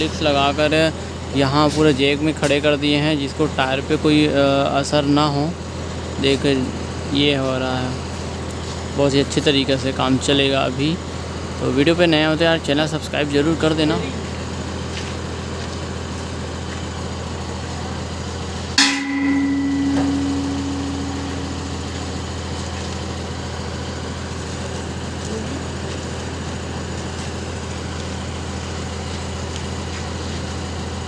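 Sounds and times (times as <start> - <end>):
diesel engine idling: 0.0 - 31.0
loud metallic clang: 18.8 - 22.8.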